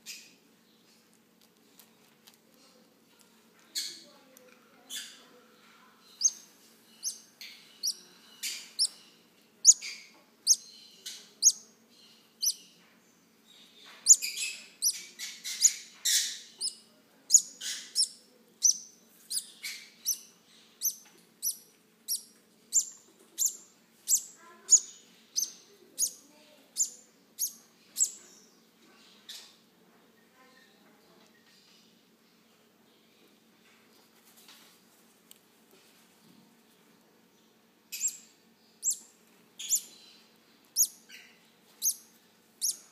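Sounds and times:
parrot chicks chirping: 6.0 - 12.8, 13.5 - 29.6, 37.9 - 42.9.

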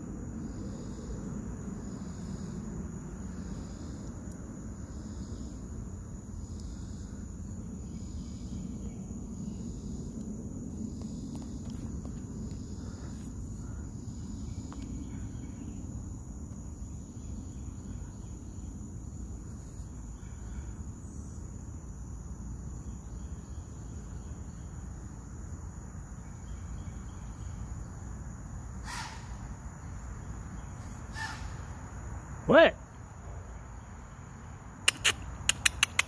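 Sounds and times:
high-pitched insect chorus: 0.0 - 36.0
crow cawing: 28.8 - 29.4, 31.1 - 31.7.

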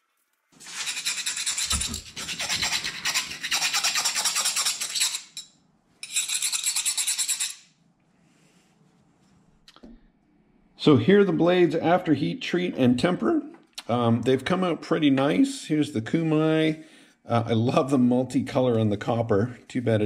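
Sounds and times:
metal file rasping on steel blade: 0.6 - 5.3.

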